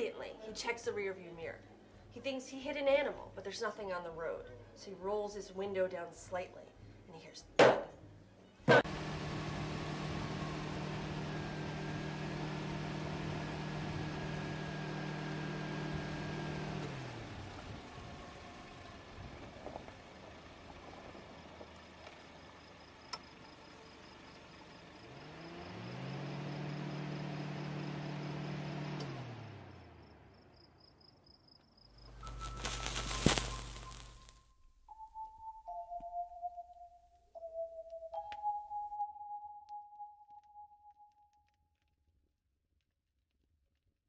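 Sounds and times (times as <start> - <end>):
car engine running: 8.7 - 22.7, 24.1 - 30.3.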